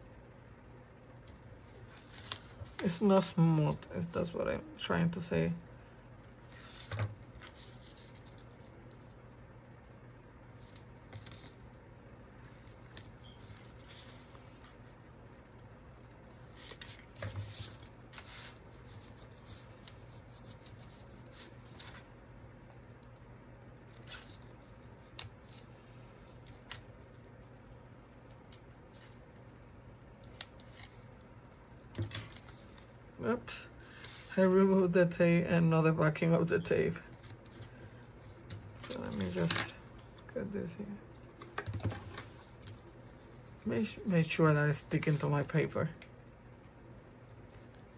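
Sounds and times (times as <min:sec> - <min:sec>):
paper rustling and rubbing: 0:01.7 - 0:03.0, 0:06.4 - 0:09.1, 0:12.4 - 0:14.9, 0:16.2 - 0:22.1, 0:23.8 - 0:27.6, 0:30.2 - 0:31.2, 0:41.1 - 0:44.1.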